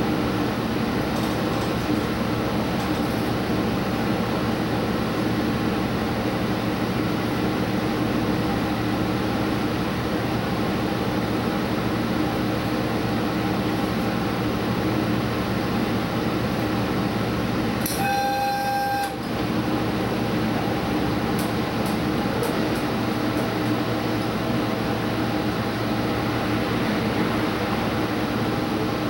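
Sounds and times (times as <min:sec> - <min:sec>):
train running noise: 0:00.0 - 0:29.0
train horn: 0:17.9 - 0:19.2.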